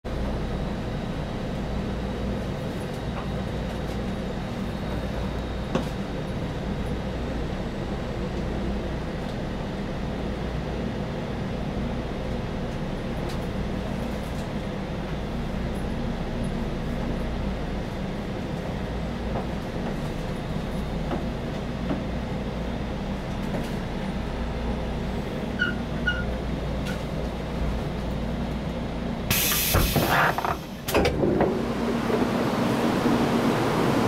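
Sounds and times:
train rumble and hum: 0.0 - 34.0.

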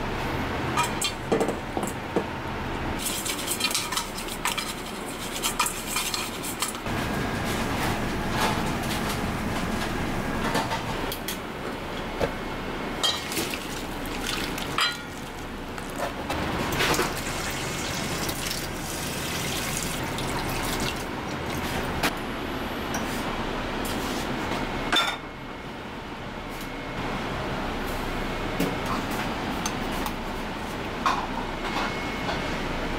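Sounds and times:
metal bowls and pans clinking: 14.6 - 15.3.

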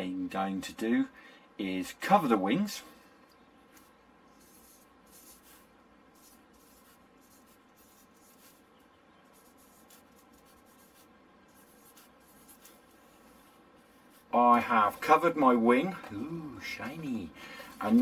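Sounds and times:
pen scratching on paper: 3.8 - 15.4.

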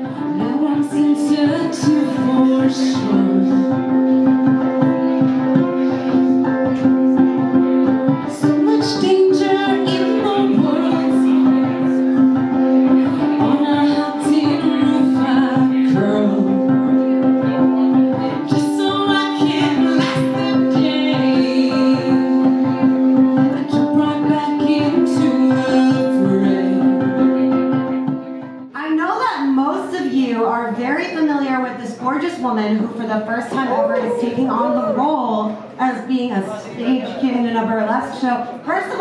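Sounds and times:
woman singing: 0.0 - 5.7, 6.4 - 27.8, 30.0 - 35.6
ukulele: 0.0 - 28.7.

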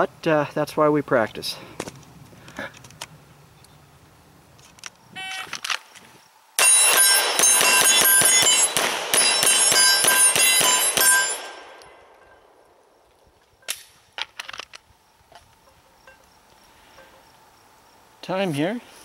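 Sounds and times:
rapid pistol shots: 6.6 - 11.7
metallic ringing: 6.6 - 13.0, 15.6 - 17.3.

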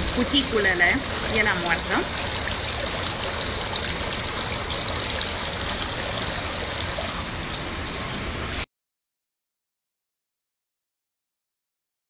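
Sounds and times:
water trickling in pool: 0.0 - 8.6.

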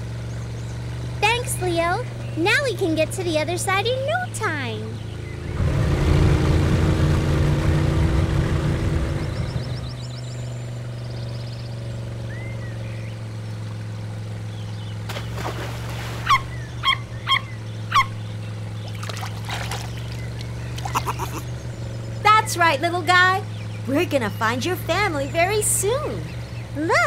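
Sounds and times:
motor rumbling and humming: 0.0 - 27.0
otter squeaks: 18.9 - 21.4.

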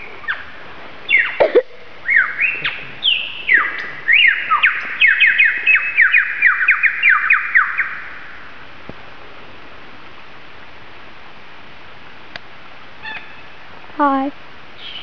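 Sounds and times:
lyrebird singing: 1.1 - 8.1, 13.0 - 13.5, 14.8 - 15.0.

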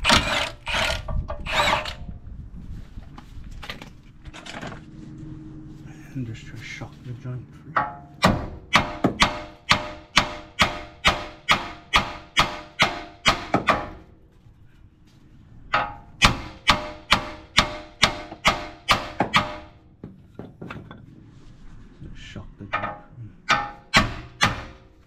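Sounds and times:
hammer blows ringing on metal: 7.8 - 14.0, 15.8 - 19.8, 22.7 - 24.9.

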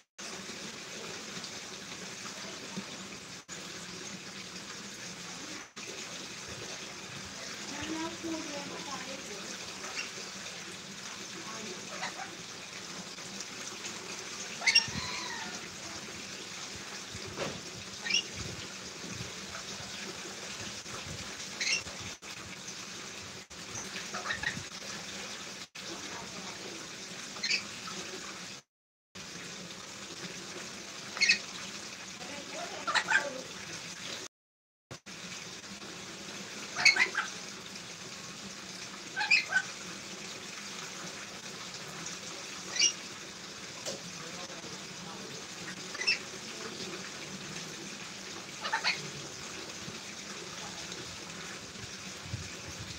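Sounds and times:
parrot sharp calls: 14.6 - 15.6, 18.0 - 18.3, 21.6 - 21.8, 31.2 - 31.4, 36.8 - 37.4, 39.2 - 39.7, 42.7 - 43.0, 48.6 - 49.1.

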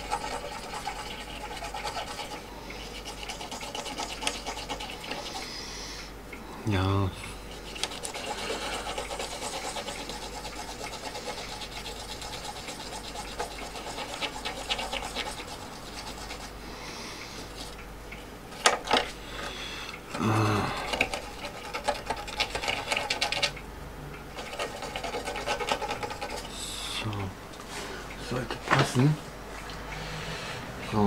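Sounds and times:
cotton swab scrubbing circuit board: 0.0 - 5.5, 7.5 - 16.6, 24.4 - 26.6.

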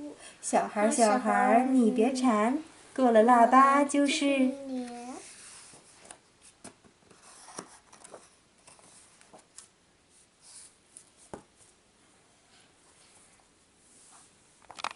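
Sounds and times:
paper rustling: 4.8 - 9.7
soft taps of book: 11.0 - 11.5.

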